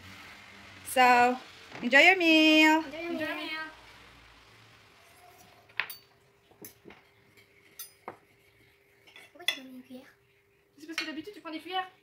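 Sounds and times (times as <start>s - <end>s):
cutlery clinking on plates: 5.3s - 8.3s.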